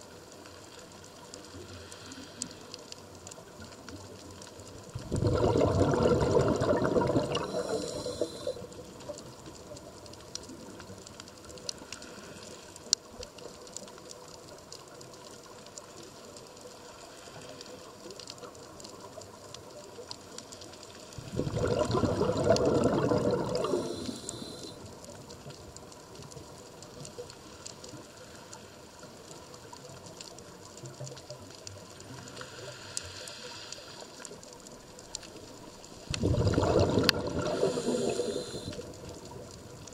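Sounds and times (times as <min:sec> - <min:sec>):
faint ticks: 0:00.0 - 0:05.2, 0:06.6 - 0:21.3, 0:21.9 - 0:39.9
underwater hiss: 0:00.5 - 0:03.4, 0:04.8 - 0:09.7, 0:11.6 - 0:13.0, 0:20.5 - 0:25.1, 0:32.0 - 0:34.5, 0:35.2 - 0:39.5
exhaled bubbles underwater: 0:03.5 - 0:10.9, 0:21.1 - 0:25.0, 0:35.8 - 0:39.9.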